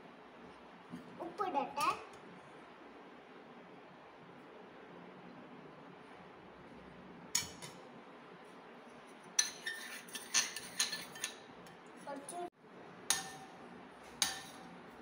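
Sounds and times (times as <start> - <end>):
utensil clinking against glass bowl: 9.4 - 11.8.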